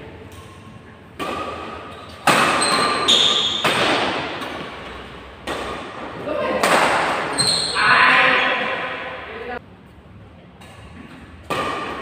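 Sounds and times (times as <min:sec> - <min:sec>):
rackets hitting shuttlecock: 0:00.3 - 0:07.6, 0:10.6 - 0:12.0.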